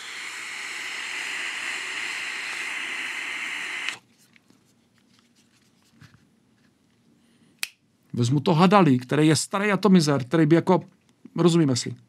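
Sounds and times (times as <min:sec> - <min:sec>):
vape airflow hiss: 0:00.0 - 0:04.0.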